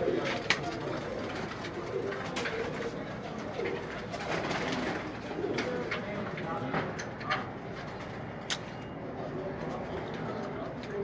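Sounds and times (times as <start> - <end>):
pigeons cooing: 0.0 - 6.0.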